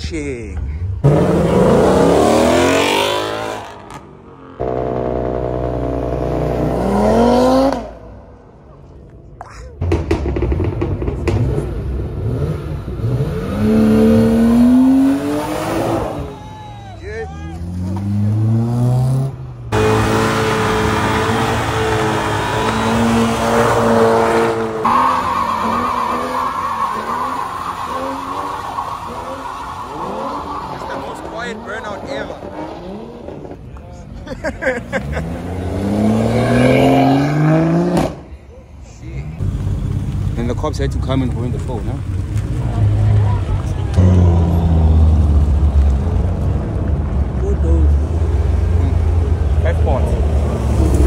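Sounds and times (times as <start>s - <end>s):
car engines pulling away: 0.6s - 8.5s, 9.8s - 16.5s, 17.5s - 33.7s, 34.6s - 38.3s, 39.2s - 51.0s
car engine revving: 0.9s - 8.3s, 9.8s - 16.3s, 17.6s - 33.6s, 35.0s - 38.2s.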